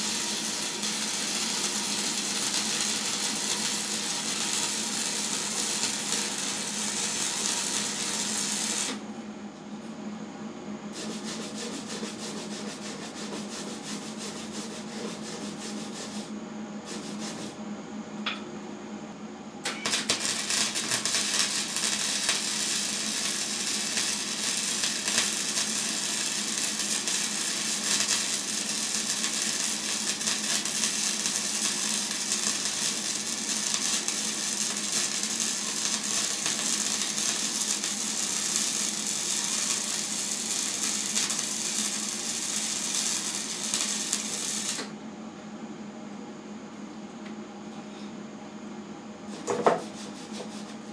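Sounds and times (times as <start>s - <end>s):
welding arc crackling: 0.0s - 9.0s, 19.7s - 44.9s.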